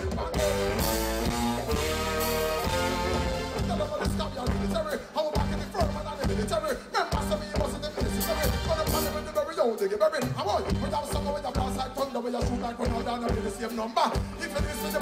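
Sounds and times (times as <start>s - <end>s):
reggae band playing: 0.0s - 15.0s
man singing into a microphone: 3.5s - 15.0s.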